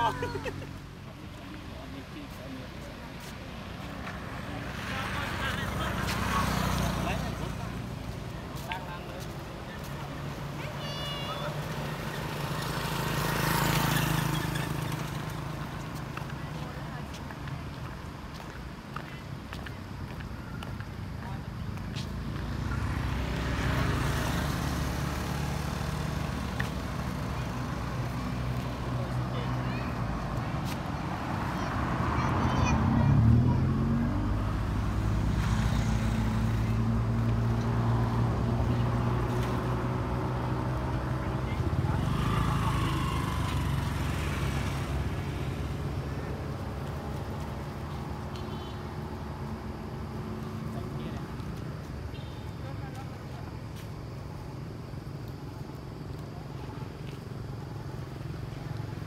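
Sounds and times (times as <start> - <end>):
vehicle engine humming: 0.0 - 59.0.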